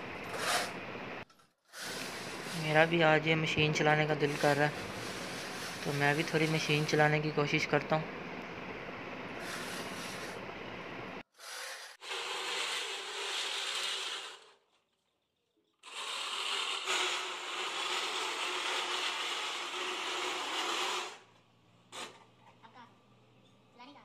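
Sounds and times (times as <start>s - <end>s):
push reel mower cutting grass: 11.6s - 14.5s, 15.8s - 21.2s.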